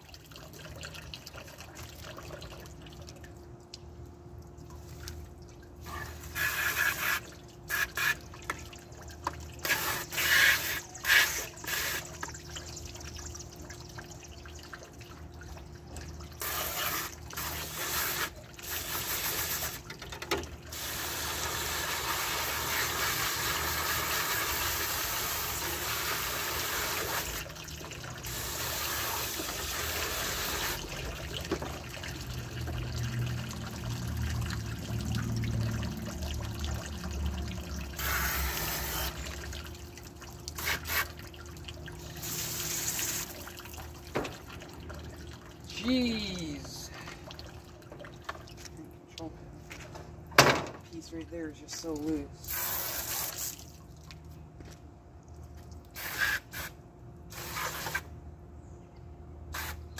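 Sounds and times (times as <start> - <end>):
hose spray hissing against metal unit: 5.8 - 8.2, 9.6 - 12.2, 16.4 - 19.8, 28.3 - 30.9, 38.0 - 39.3, 40.6 - 41.2, 42.2 - 43.4, 52.4 - 53.5, 56.0 - 58.1, 59.5 - 59.8.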